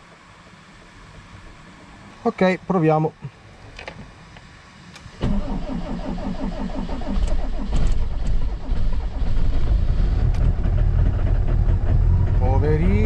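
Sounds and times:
diesel engine cranking: 5.1 - 13.0
diesel engine idling: 7.0 - 13.0.

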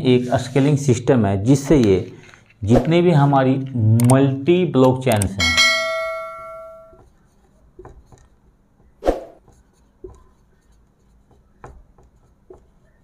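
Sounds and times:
marker writing on whiteboard: 6.9 - 13.0.

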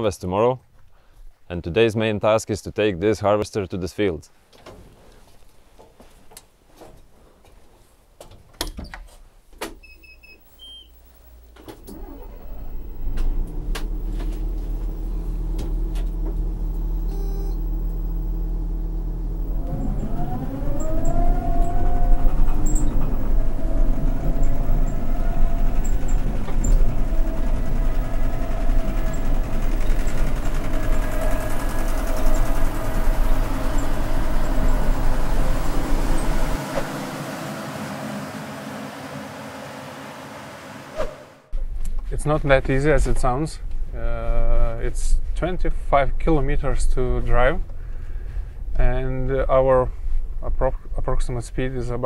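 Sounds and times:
diesel engine starting and running: 11.0 - 41.9
engine revving with rising whine: 11.8 - 41.5
short electronic beep: 17.1 - 17.6.

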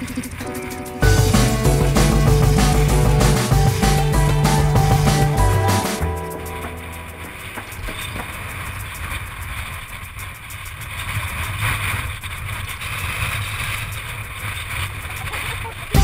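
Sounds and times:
bike rattling over loose stones: 6.2 - 16.0.

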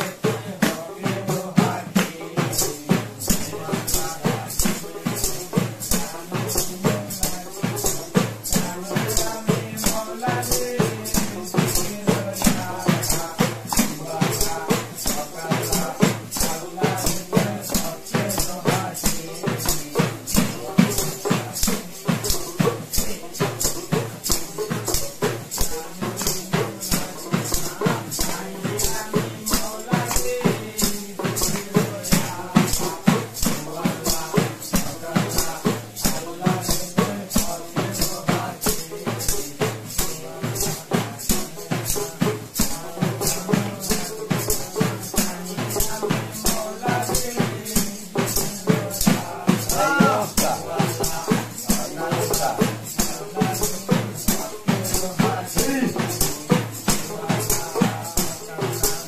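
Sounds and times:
hand drum and percussion: 0.0 - 59.0
person chanting: 25.5 - 59.0.

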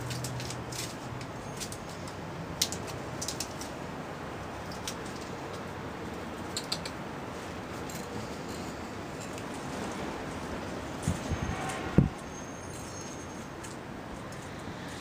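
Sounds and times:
ferrets clicking and scratching: 0.0 - 10.0.

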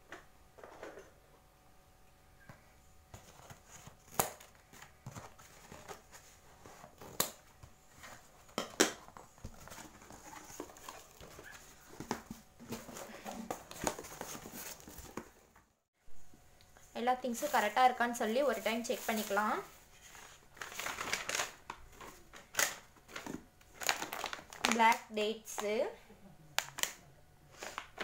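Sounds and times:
packets rustling: 3.2 - 15.6, 17.3 - 25.0
cardboard snapping: 4.1 - 4.5.

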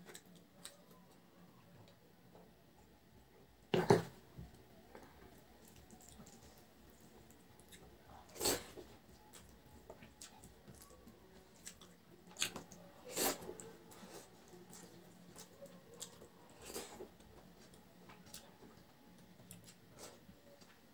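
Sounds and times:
chewing: 4.9 - 20.7.

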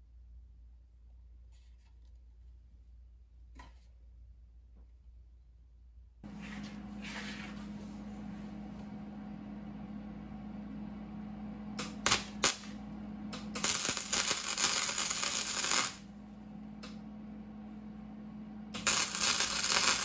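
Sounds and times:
low steady hum: 0.0 - 20.0
welding arc crackling: 11.8 - 16.1, 18.7 - 20.0.

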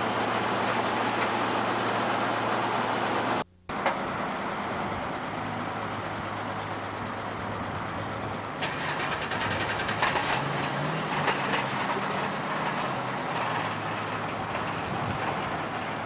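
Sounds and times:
heavy truck engine running: 0.0 - 16.0
metallic rattling and clanking: 8.6 - 15.8.

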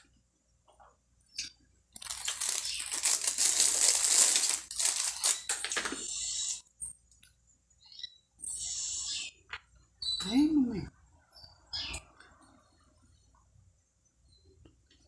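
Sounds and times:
biscuits crinkling and crunching: 1.9 - 7.4.

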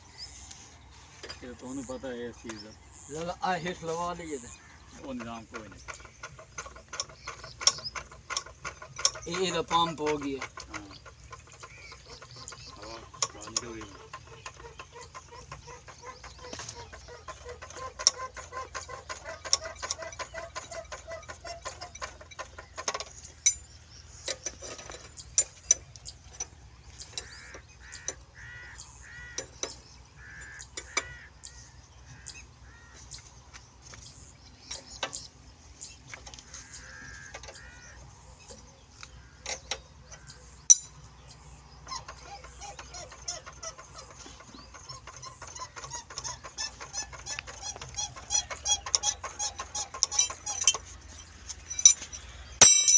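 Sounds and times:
hens clucking: 0.0 - 23.4, 41.7 - 52.2.

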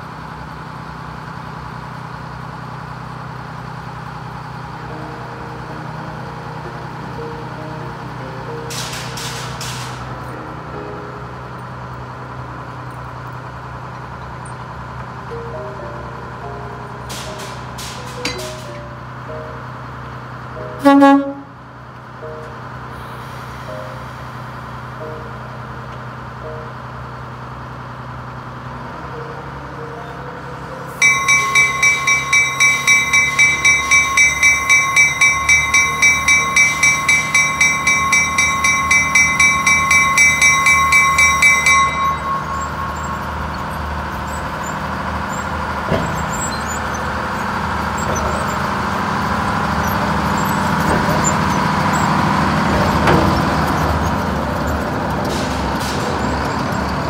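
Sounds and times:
locomotive engine and wheel noise: 0.0 - 57.0
locomotive bell ringing: 4.0 - 21.6, 29.8 - 57.0.

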